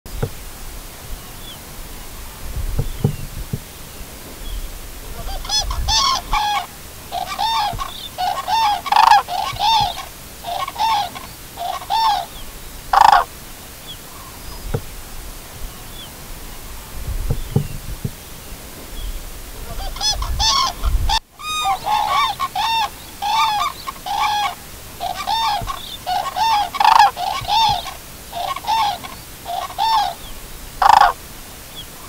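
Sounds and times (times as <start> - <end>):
cranes trumpeting calls: 5.0 - 13.4, 19.6 - 31.2.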